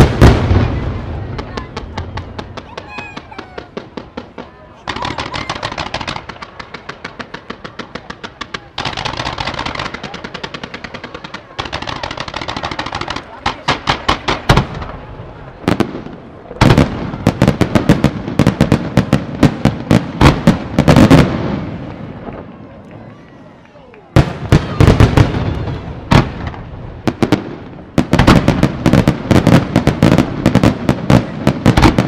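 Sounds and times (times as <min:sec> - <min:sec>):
fireworks popping: 0:00.0 - 0:32.0.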